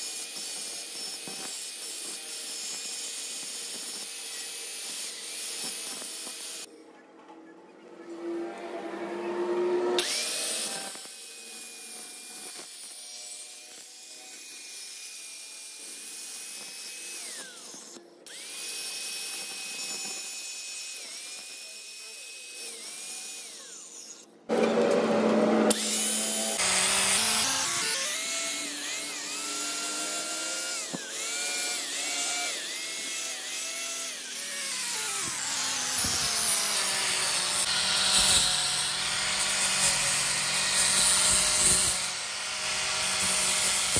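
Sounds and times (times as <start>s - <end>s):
angle grinder whining: 0.0s - 6.7s, 7.9s - 43.9s
disc grinding on metal gear: 23.6s - 43.9s.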